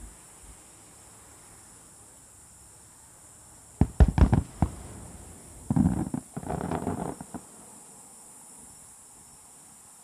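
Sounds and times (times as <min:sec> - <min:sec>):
firework shells booming: 0:03.8 - 0:07.5.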